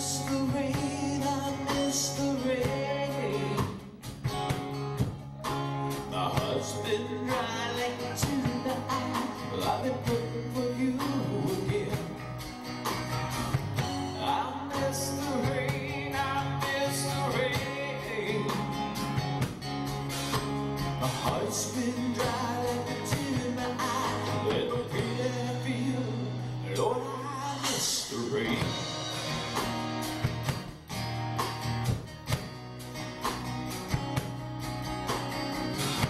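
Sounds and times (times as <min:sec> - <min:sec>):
man singing: 0:00.0 - 0:04.0, 0:06.0 - 0:12.3, 0:14.0 - 0:19.2, 0:20.9 - 0:29.2
acoustic guitar: 0:00.0 - 0:36.0
bass: 0:00.0 - 0:36.0
drums: 0:00.0 - 0:36.0.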